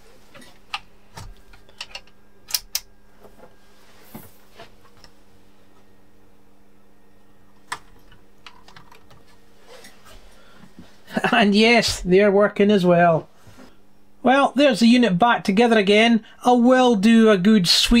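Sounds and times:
faint steady hum: 0.0 - 18.0.

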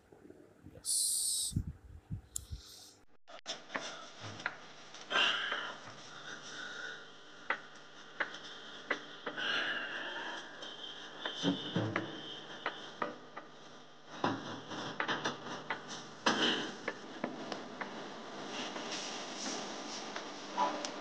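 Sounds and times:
loud hiss: 0.8 - 1.6
man breathing heavily: 5.1 - 11.3.

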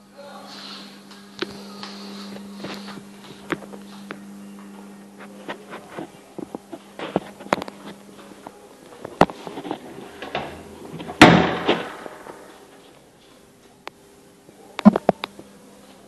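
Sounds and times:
loud bang: 11.2 - 12.5.

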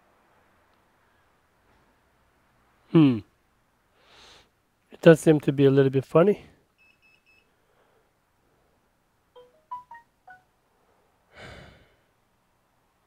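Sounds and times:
short breath: 3.9 - 4.6, 7.5 - 8.9, 10.8 - 12.1
electronic notification jingle: 9.4 - 10.4
short high electronic beeps: 9.4 - 10.5.

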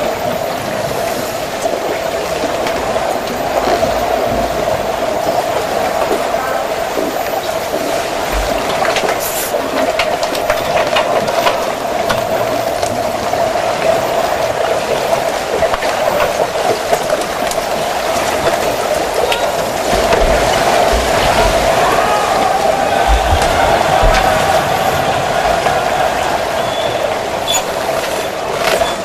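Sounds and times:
bubble clicks and crackles: 0.6 - 24.8
underwater rushing hiss: 3.6 - 9.7.

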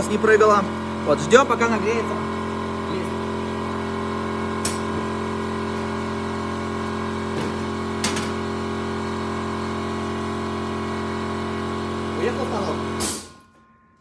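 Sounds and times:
machine electric hum: 0.0 - 13.6.

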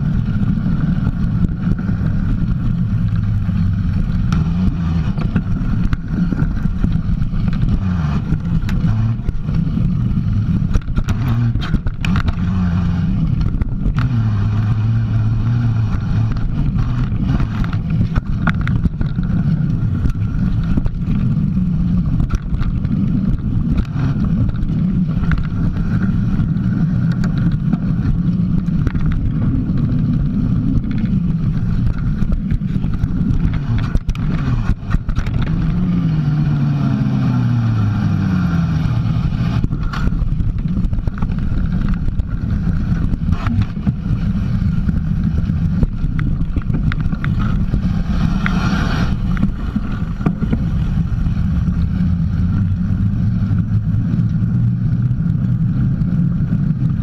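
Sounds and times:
bike tyres rolling on dirt: 0.0 - 57.0.

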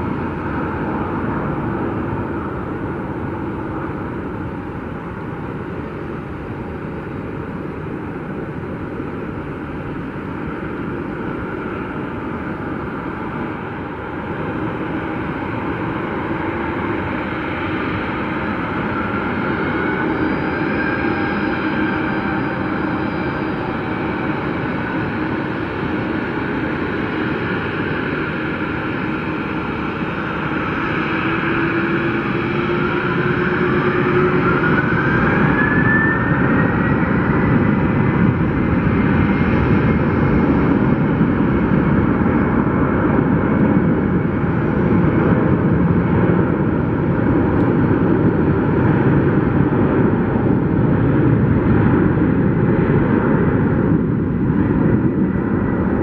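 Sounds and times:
jet engines spooling up: 30.4 - 40.6.

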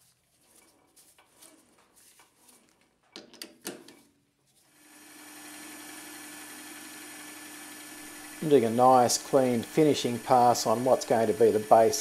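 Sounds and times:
lathe motor hum: 4.8 - 12.0.

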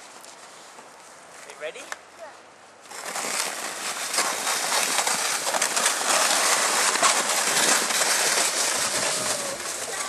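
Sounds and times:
sled scraping over snow: 2.8 - 10.0.

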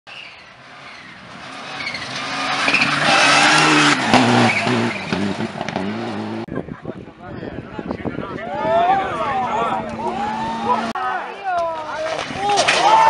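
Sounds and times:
rally car engine passing: 0.3 - 6.5, 9.4 - 11.0
sharp crack: 11.6 - 13.0.

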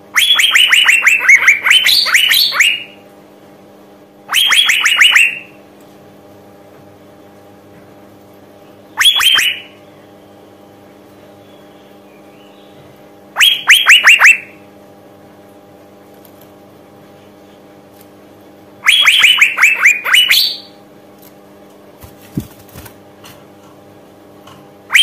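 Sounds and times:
bird whistled call: 0.2 - 3.0, 4.3 - 5.5, 8.9 - 9.8, 13.4 - 14.6, 18.8 - 20.8.

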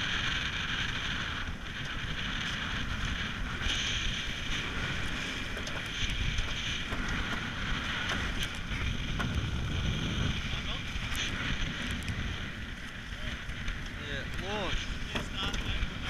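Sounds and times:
water rushing along hull: 0.0 - 16.0
wind buffeting microphone: 0.0 - 16.0.

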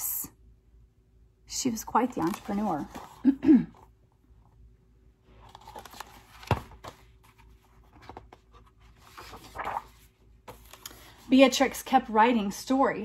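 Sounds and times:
paper pages rustling: 2.0 - 3.4, 5.3 - 11.8.

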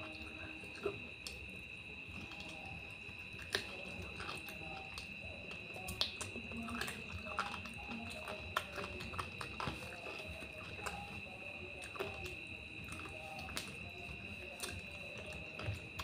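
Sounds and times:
person chewing and lip smacking: 0.0 - 16.0.

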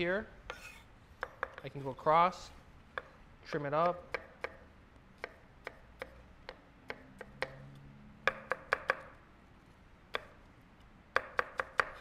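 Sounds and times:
knife chopping on wooden board: 0.5 - 1.8, 2.9 - 3.2, 3.8 - 4.6, 5.2 - 7.6, 8.2 - 9.1, 10.1 - 10.4, 11.1 - 12.0.

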